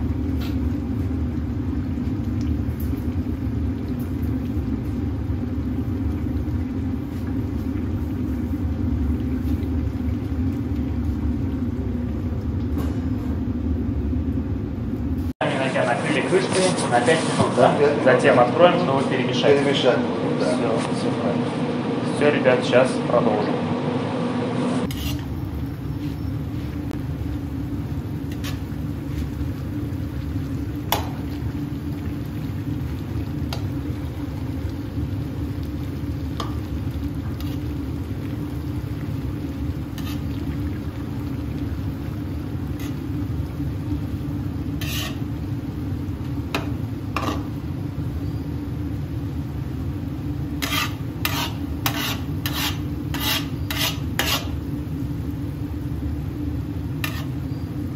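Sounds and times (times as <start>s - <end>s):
utensil scraping a pot: 24.8s - 25.3s, 28.3s - 28.7s, 37.4s - 37.7s, 40.0s - 40.4s, 42.8s - 43.0s, 44.8s - 45.3s, 47.2s - 47.5s, 50.6s - 54.6s, 57.0s - 57.5s
rice stirred in a pot: 24.9s - 25.3s, 28.2s - 31.4s, 36.2s - 45.4s, 46.5s - 47.6s, 50.6s - 54.6s, 56.9s - 57.8s.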